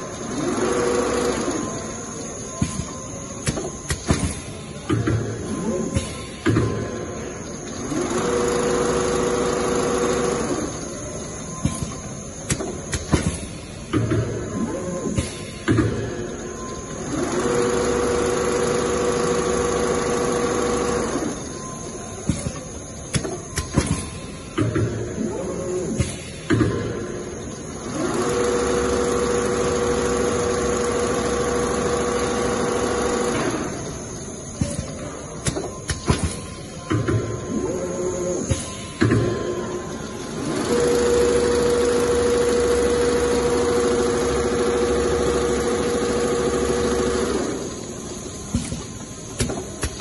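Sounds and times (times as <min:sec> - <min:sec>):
sewing machine motor hum: 0:00.0 - 0:02.0, 0:07.8 - 0:10.8, 0:17.0 - 0:21.5, 0:27.7 - 0:34.1, 0:40.2 - 0:48.6.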